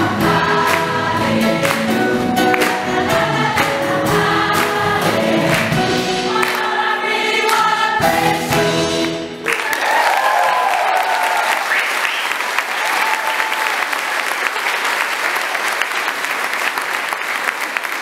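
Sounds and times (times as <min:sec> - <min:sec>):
choir singing chord: 0:00.0 - 0:09.0
applause: 0:09.4 - 0:18.0.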